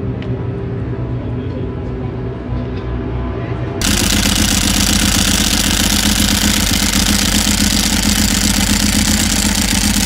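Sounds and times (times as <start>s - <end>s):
motorcycle engine idling: 3.8s - 10.0s.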